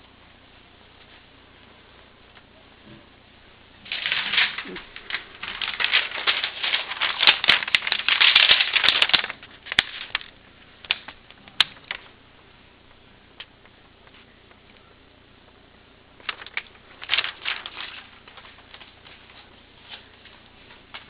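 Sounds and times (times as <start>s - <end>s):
rapid clicks and rattling: 3.9s - 12.1s, 16.2s - 19.2s.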